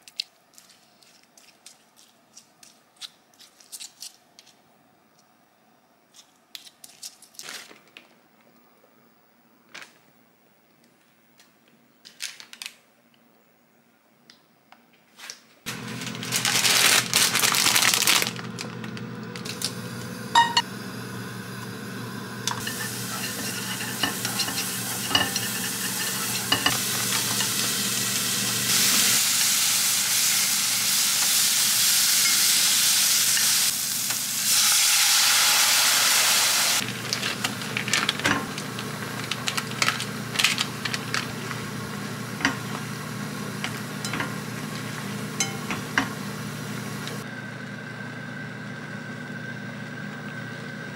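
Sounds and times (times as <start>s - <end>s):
food sizzling in a pot: 19.7s - 39.2s.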